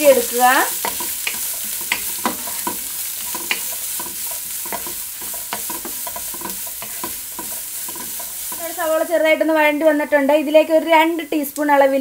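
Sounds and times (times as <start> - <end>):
wooden spatula scraping a pan: 0.0 - 9.5
onions sizzling in a wok: 0.0 - 12.0.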